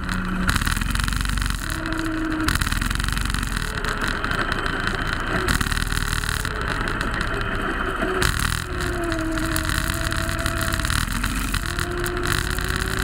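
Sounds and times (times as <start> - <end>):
go-kart engine running: 0.0 - 13.0.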